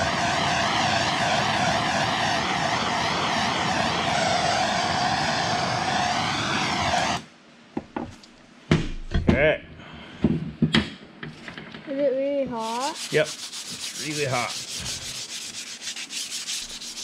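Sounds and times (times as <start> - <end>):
gas torch flame hissing: 0.0 - 7.3, 12.5 - 17.0.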